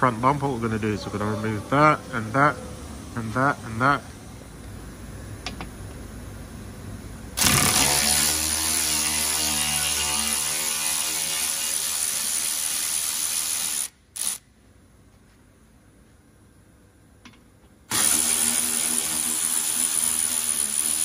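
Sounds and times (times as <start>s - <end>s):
cordless power tool motor whine: 7.4s - 10.5s, 17.9s - 21.0s.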